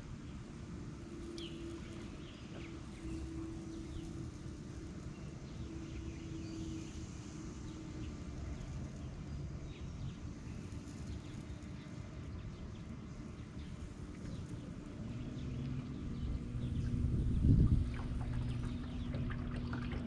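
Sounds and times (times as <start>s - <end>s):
faint hum: 0.0s - 20.0s
birds chirping: 9.7s - 20.0s
low rumble: 13.6s - 20.0s.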